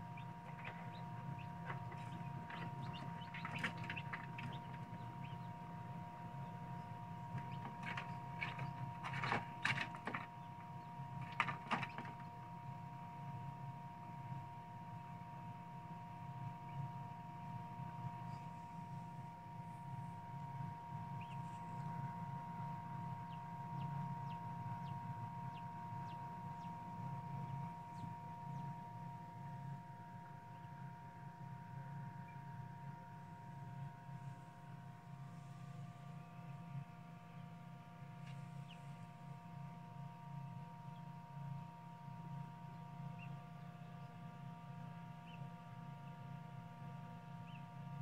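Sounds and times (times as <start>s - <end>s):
fan humming: 0.0s - 13.0s, 16.5s - 30.7s
chick peeping: 0.1s - 5.5s, 21.2s - 21.8s.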